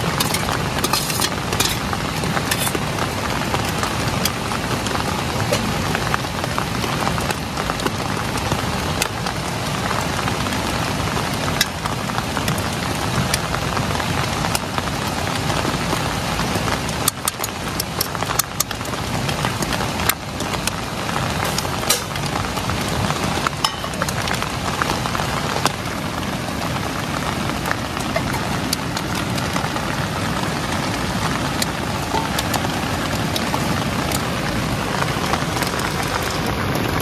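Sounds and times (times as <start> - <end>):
camping stove hissing: 0.0 - 6.1, 18.0 - 25.6.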